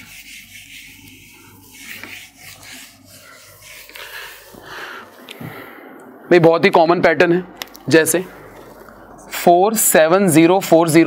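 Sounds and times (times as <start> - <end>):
eraser rubbing on whiteboard: 0.0 - 4.6.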